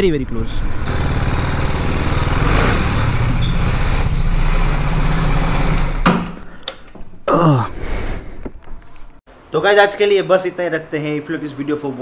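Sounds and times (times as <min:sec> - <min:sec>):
motorcycle engine running: 0:00.0 - 0:06.1.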